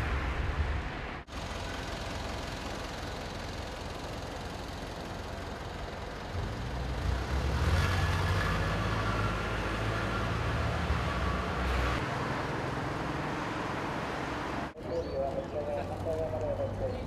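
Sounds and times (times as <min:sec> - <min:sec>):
heavy vehicle engine rumble: 0:00.0 - 0:12.0
street traffic: 0:00.0 - 0:17.0.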